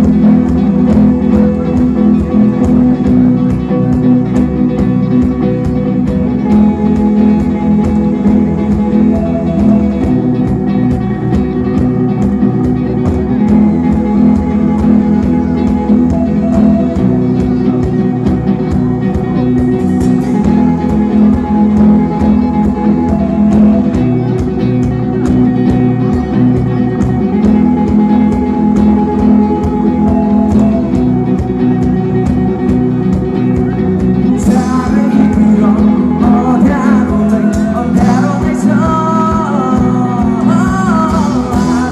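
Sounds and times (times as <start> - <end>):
acoustic guitar: 0.0 - 41.9
drum kit: 0.0 - 41.9
electric guitar: 0.0 - 41.9
keyboard: 0.0 - 41.9.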